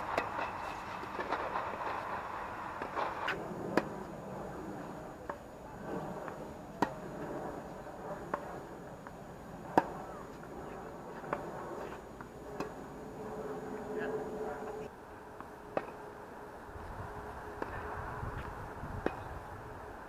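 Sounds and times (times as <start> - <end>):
tennis ball hit with rackets: 2.8 - 3.9.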